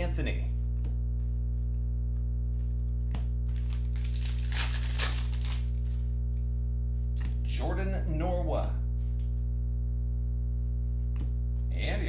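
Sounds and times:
wrapper tearing and crinkling: 3.5s - 6.0s.

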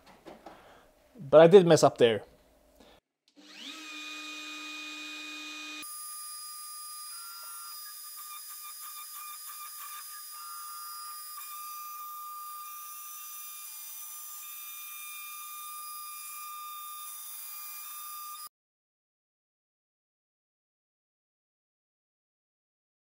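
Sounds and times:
router spinning high-pitched whine: 3.4s - 12.9s.

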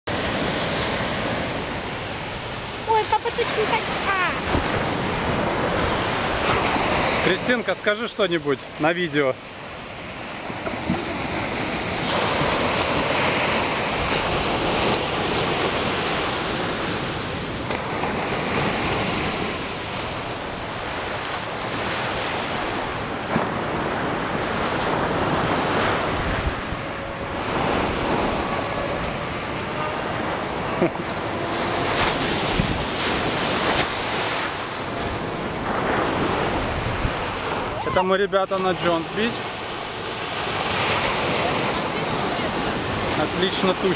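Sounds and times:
ocean surf breaking: 0.1s - 43.9s
wind buffeting microphone: 9.8s - 38.0s.

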